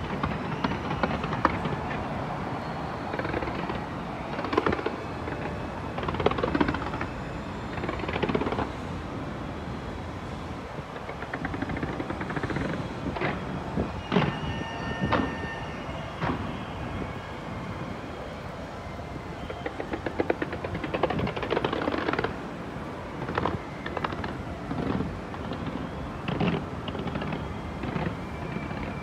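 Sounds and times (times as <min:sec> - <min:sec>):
fireworks crackling: 0:00.0 - 0:08.7, 0:19.3 - 0:29.0
continuous rumble: 0:00.0 - 0:29.0
fireworks bangs: 0:23.2 - 0:29.0.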